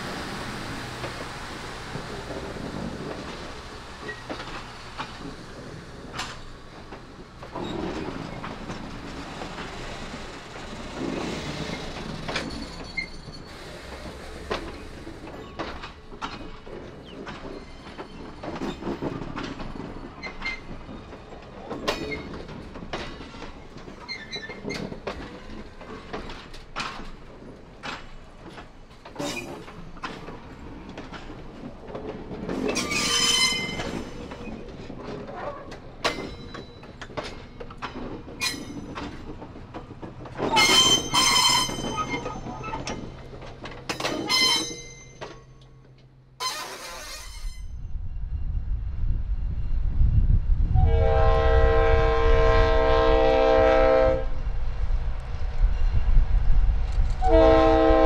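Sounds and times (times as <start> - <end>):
train wheels clicking over rail joints: 0.0 - 47.7
low train rumble: 0.0 - 58.0
wheel squeals: 3.2 - 6.5, 7.4 - 15.8, 17.0 - 19.1, 24.0 - 24.9, 32.6 - 37.8, 38.4 - 39.2, 40.4 - 43.2, 43.9 - 45.6, 46.4 - 47.8.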